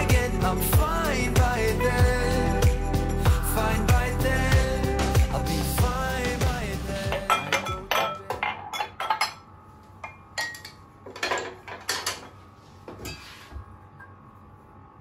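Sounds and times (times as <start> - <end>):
glasses and mugs clinking: 7.0 - 9.4, 10.0 - 12.3.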